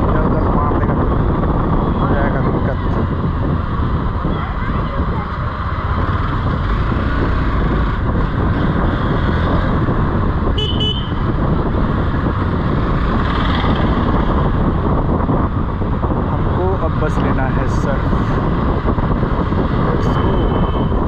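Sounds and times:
motorcycle engine: 0.0s - 21.0s
wind on microphone: 0.0s - 21.0s
vehicle horn beeps: 10.6s - 11.2s, 20.1s - 21.0s.

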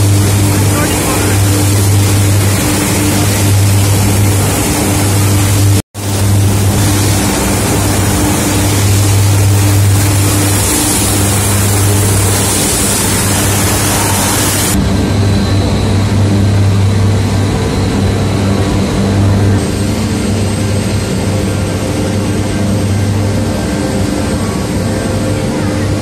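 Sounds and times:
industrial machinery drone: 0.0s - 26.0s.

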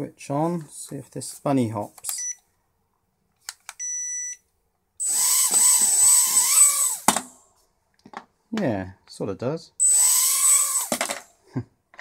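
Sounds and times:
tiny propellers whining: 5.0s - 7.1s, 9.8s - 11.2s.

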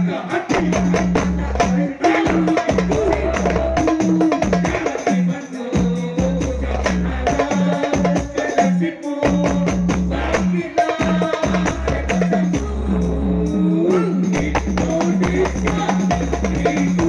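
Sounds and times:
deep bass beat: 0.0s - 4.9s, 5.8s - 8.4s, 9.3s - 17.0s
tambourine jingles: 0.1s - 12.9s.

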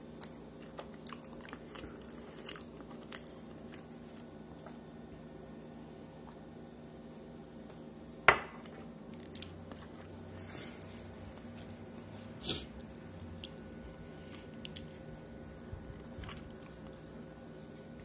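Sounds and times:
steady low hum: 0.0s - 18.0s
person chewing food: 0.1s - 5.0s, 8.6s - 18.0s.

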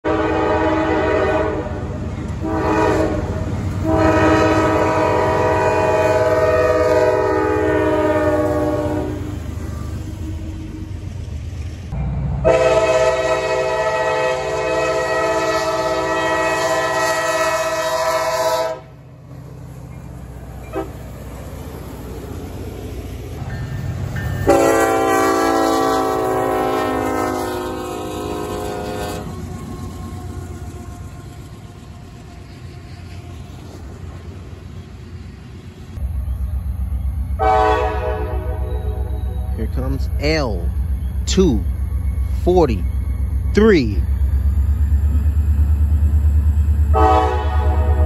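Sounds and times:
locomotive air horn blasts: 0.0s - 9.9s, 12.4s - 19.0s, 20.7s - 21.0s, 24.4s - 29.4s, 37.4s - 39.5s, 46.9s - 48.0s
passing train rumble: 0.0s - 48.0s.

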